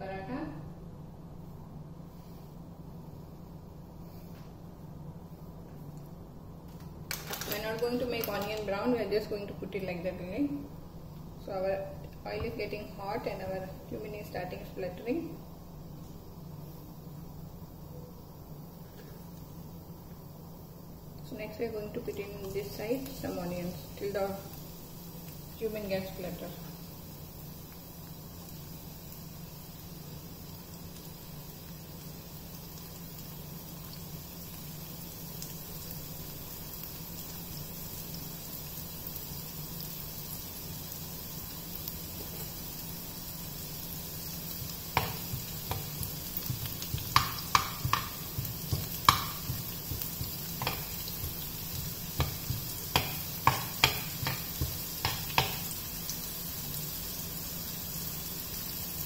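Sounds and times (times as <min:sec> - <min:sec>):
oil sizzling in frying pan: 0:06.7 - 0:59.0
seeds popping and crackling: 0:06.8 - 0:08.7, 0:44.6 - 0:55.6.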